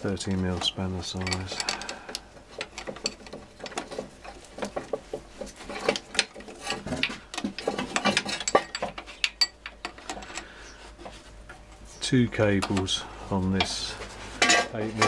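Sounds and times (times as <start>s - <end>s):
metallic clinking of hand tools: 1.1s - 4.8s, 5.7s - 10.5s.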